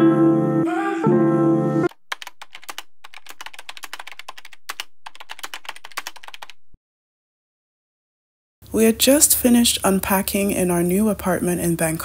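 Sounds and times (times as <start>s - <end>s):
music with sustained notes: 0.0s - 1.9s.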